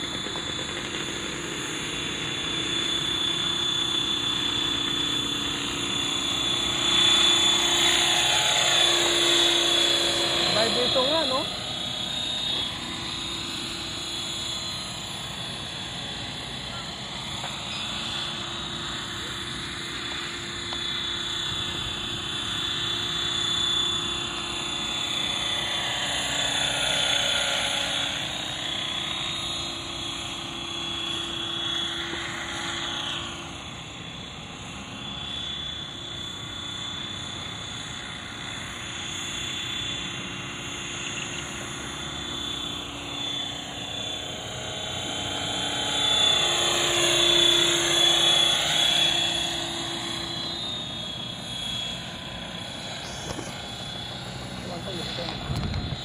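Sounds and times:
model helicopter motor and rotors whining: 0.0 - 56.0.

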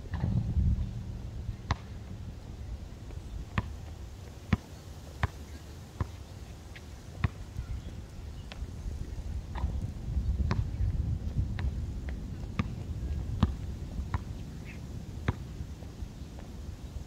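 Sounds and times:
low rumble: 0.0 - 3.9
basketball bouncing on concrete: 1.6 - 2.0, 3.5 - 3.7, 7.2 - 7.4, 10.4 - 10.8, 12.6 - 12.8, 13.4 - 14.3.

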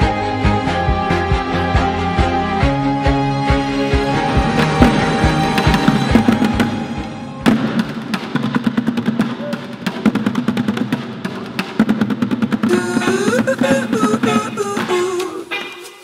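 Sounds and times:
drumming on plastic buckets: 4.2 - 16.0.

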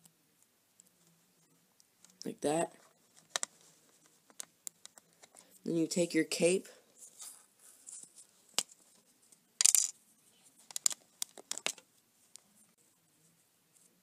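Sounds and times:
small plastic clicks: 10.7 - 11.8.

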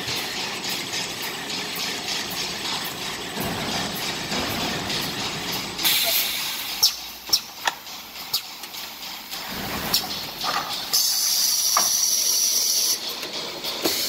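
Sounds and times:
mechanism clicks and knocks: 1.0 - 12.0.

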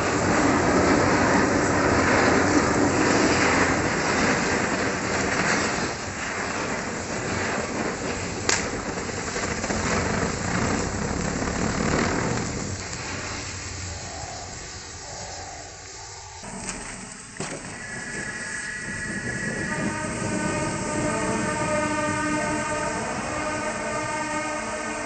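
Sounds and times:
firework fountains hissing: 0.0 - 25.0
sharp crack: 3.0 - 13.9, 16.4 - 18.8.

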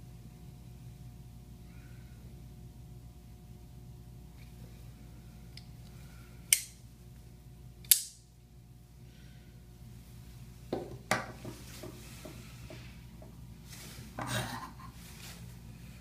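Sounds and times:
folding knife blade snapping: 7.8 - 8.2.

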